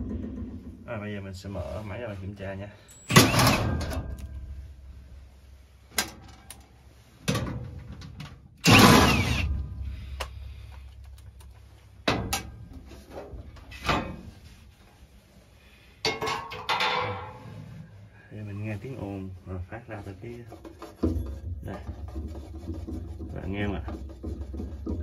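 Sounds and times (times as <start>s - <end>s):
metal panel clanks and rattles: 0.0s - 0.8s, 3.1s - 4.5s, 7.3s - 9.6s, 12.0s - 14.4s, 16.1s - 17.5s.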